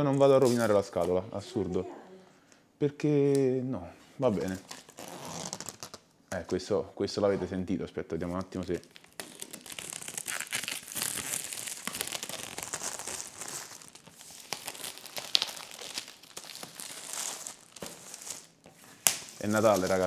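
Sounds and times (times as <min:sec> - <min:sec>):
plastic film crinkling and tearing: 0:04.4 - 0:06.0, 0:08.3 - 0:20.0.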